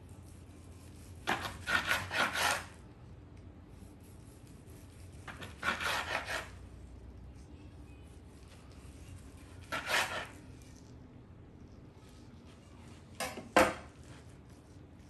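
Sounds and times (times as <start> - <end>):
knife sawing through meat: 0.3 - 2.8, 4.0 - 6.8, 9.1 - 10.4.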